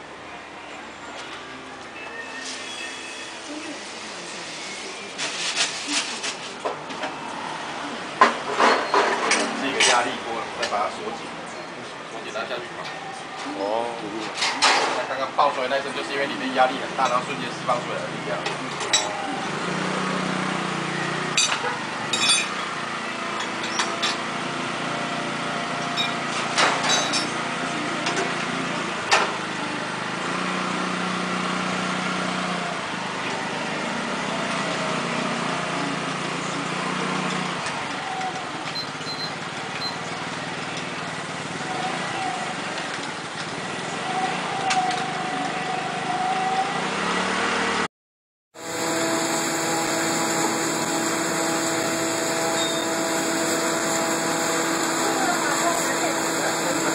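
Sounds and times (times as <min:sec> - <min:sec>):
rotating roaster drum humming: 0:48.6 - 0:56.9.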